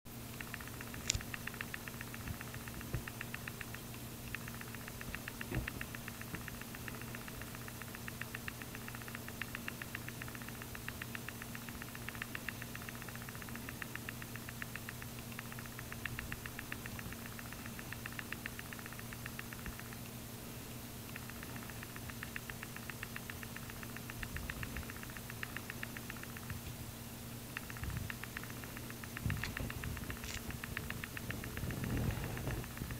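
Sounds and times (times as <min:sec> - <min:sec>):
fast regular ticking: 0:00.1 - 0:32.9
low electrical hum: 0:00.1 - 0:32.9.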